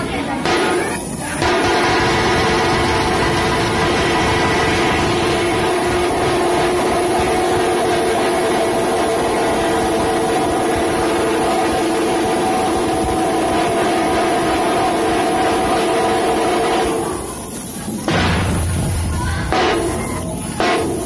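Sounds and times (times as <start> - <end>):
drums beating: 0.3 - 21.0.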